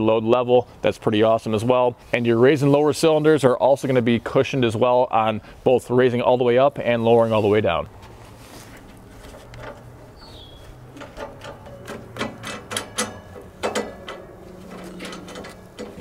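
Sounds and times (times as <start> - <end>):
metal fasteners clicking and rattling: 8.9 - 16.0.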